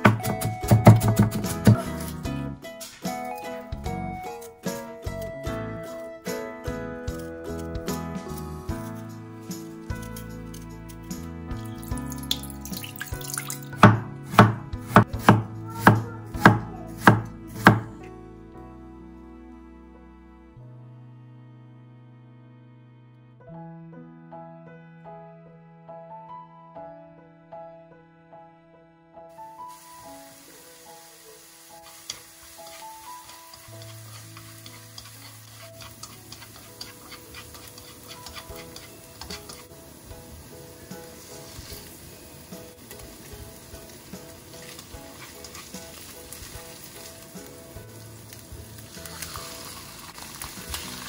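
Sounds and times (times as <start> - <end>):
knife chopping on wooden board: 0.0 - 1.9, 13.8 - 17.9
soft background music: 0.0 - 51.0
vegetables sizzling in oil: 29.4 - 51.0
chopsticks tapping a pan: 31.8 - 39.7
small knife scraping and clicking: 32.1 - 39.7.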